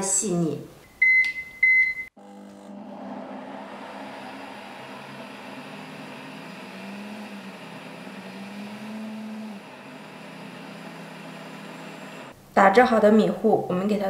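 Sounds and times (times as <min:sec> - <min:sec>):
blender motor grinding: 0:02.2 - 0:12.3.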